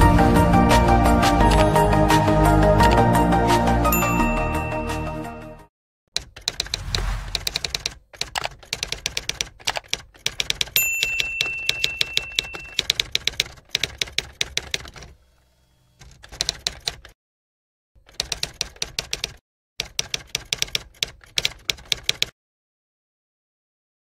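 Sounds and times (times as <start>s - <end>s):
typewriter keystrokes: 6.2s - 15.2s, 16.0s - 17.2s, 18.0s - 22.3s
typewriter bell ringing: 10.7s - 13.1s.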